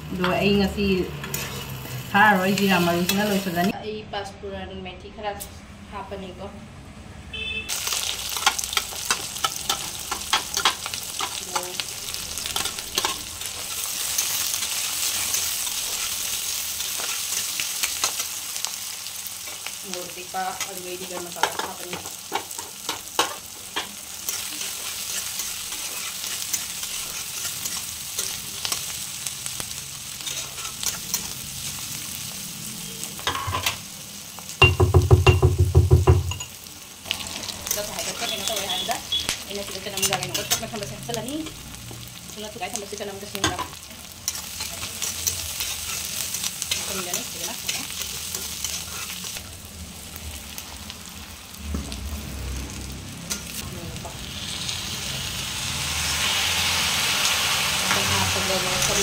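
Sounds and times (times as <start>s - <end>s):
onions sizzling in oil: 0.0s - 3.8s, 7.7s - 59.0s
spatula stirring and clicking: 8.4s - 11.7s, 44.3s - 49.4s.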